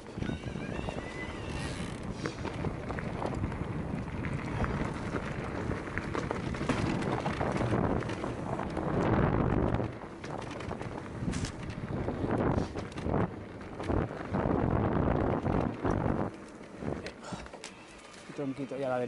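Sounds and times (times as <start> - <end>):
wind buffeting microphone: 0.0 - 17.3
bike rattling and knocking: 0.0 - 19.0
tyres rolling over dirt trail: 0.0 - 19.0
high squeal: 0.2 - 1.9.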